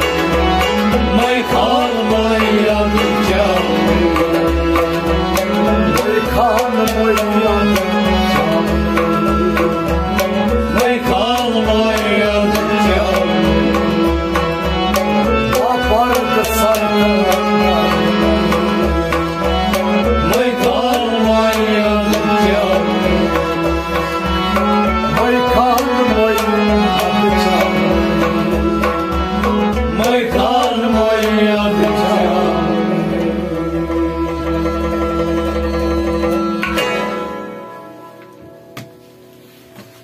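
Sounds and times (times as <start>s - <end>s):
bowed sarangi melody: 0.0s - 40.0s
hand drum rhythm: 0.0s - 40.0s
harmonium chords: 0.0s - 40.0s.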